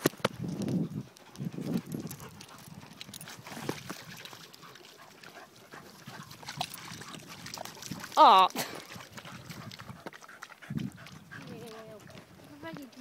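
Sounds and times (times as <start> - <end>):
steps on muddy path: 0.0 - 13.0.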